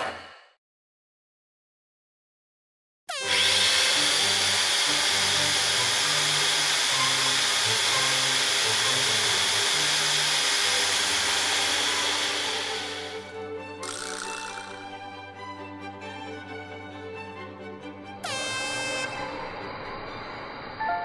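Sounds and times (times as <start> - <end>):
electric motors whining: 3.1 - 14.9, 18.2 - 20.8
soft background music: 10.6 - 21.0.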